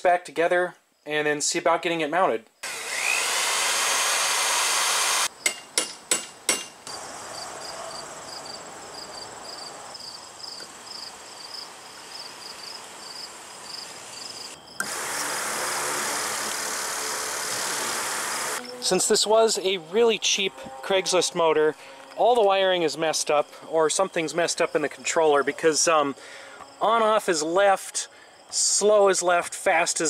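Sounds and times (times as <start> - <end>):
cordless drill running: 2.6 - 5.3, 14.8 - 18.6
electric motor propeller whirring: 2.6 - 5.3, 14.8 - 18.8
crickets chirping: 5.3 - 15.5, 18.6 - 30.0.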